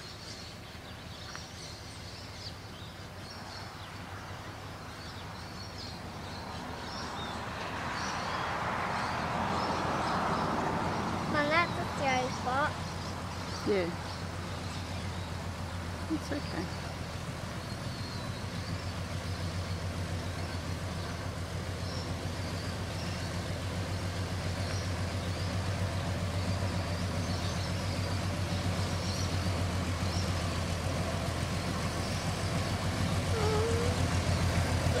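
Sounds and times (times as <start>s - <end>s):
truck engine running: 10.4s - 35.0s.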